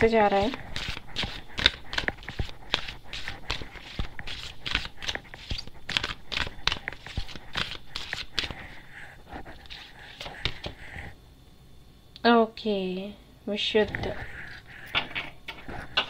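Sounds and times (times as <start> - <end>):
cards being shuffled: 0.2 - 8.8, 9.6 - 10.8.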